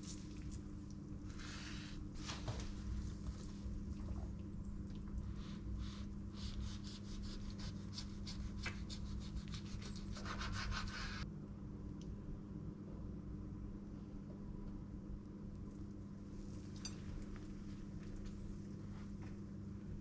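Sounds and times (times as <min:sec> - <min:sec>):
steady low hum: 0:00.0 - 0:20.0
knife sawing through burger: 0:06.4 - 0:11.2.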